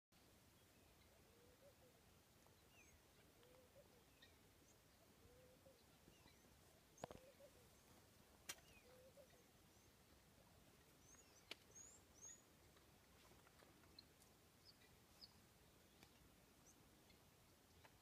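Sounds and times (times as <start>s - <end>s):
faint bird chirps: 0.5s - 8.0s, 8.6s - 10.2s, 10.8s - 12.6s.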